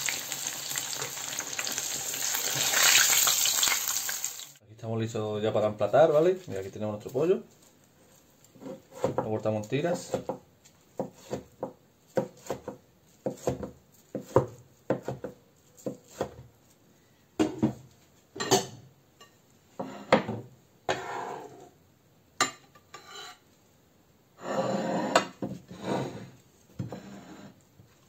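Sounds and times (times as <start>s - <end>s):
scraping on cutting board: 8.1s - 9.1s, 20.9s - 21.7s, 24.4s - 27.6s
knife chopping on wooden board: 10.0s - 16.4s.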